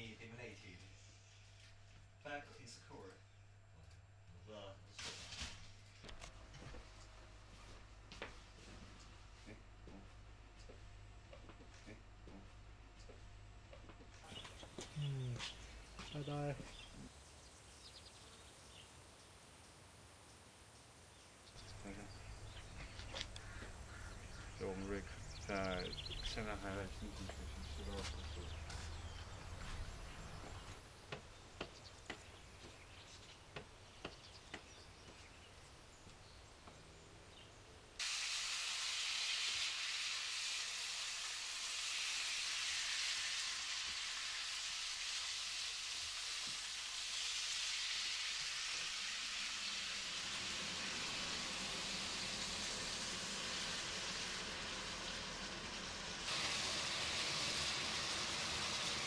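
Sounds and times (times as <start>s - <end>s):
meat sizzling in a frying pan: 38.0s - 59.0s.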